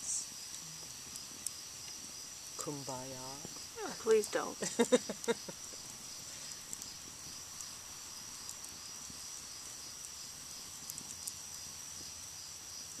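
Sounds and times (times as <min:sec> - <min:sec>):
crickets chirping: 0:00.0 - 0:13.0
wood fire crackling: 0:00.0 - 0:13.0.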